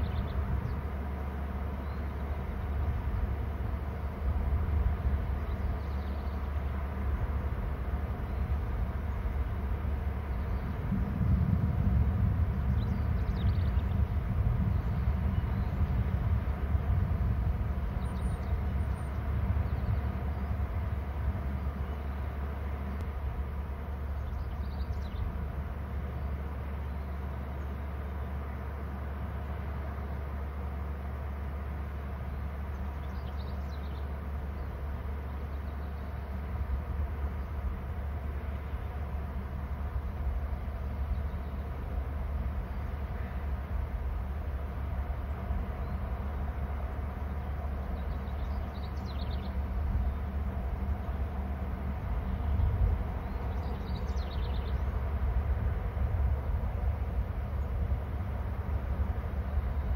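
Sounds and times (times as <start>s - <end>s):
low outdoor rumble: 0.0s - 59.9s
bird chirps: 47.9s - 50.2s, 52.3s - 54.9s.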